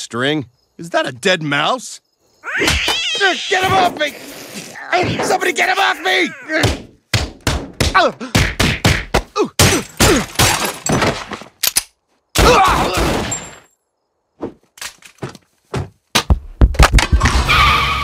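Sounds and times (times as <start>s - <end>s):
short cries: 2.4s - 5.0s
cartoon hits and thuds: 6.6s - 11.4s.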